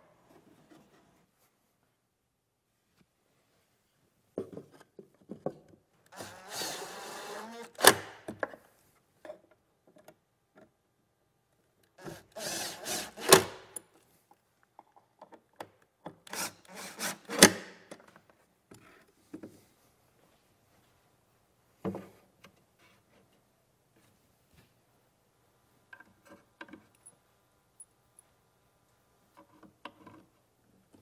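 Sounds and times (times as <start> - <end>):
impact driver driving screws: 6.1 - 8.2, 12.0 - 13.8, 16.3 - 17.7.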